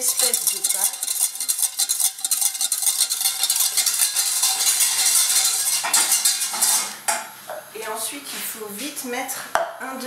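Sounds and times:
whisk scraping metal saucepan: 0.0s - 7.0s.

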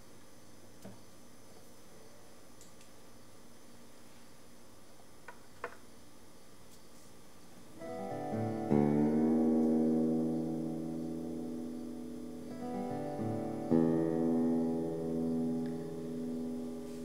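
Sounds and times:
acoustic guitar chord ringing: 7.8s - 17.0s.

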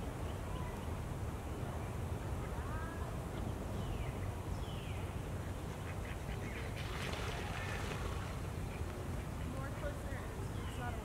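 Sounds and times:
water splashing: 6.4s - 10.2s.

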